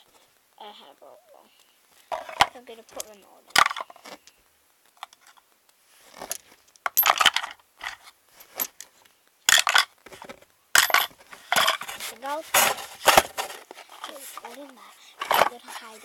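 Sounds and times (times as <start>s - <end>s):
trinkets clattering into a toy chest: 6.2s - 8.9s, 9.5s - 14.2s, 15.2s - 15.6s.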